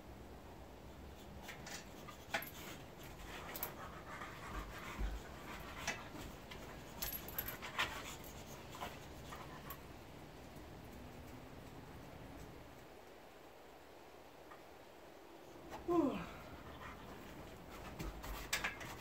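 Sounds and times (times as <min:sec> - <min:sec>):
small clicks and rustles: 0:01.0 - 0:13.6, 0:16.8 - 0:19.0
dog panting: 0:02.8 - 0:09.8, 0:16.6 - 0:18.4.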